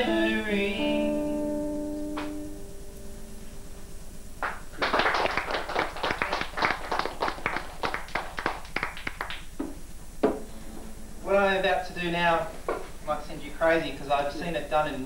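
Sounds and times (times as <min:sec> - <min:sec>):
audience clapping: 0:04.4 - 0:09.8.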